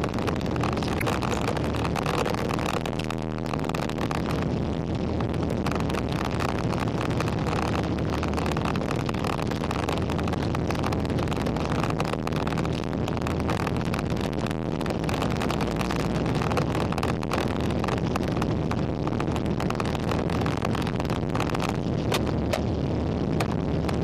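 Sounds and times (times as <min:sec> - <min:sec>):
low engine drone: 0:00.0 - 0:24.0.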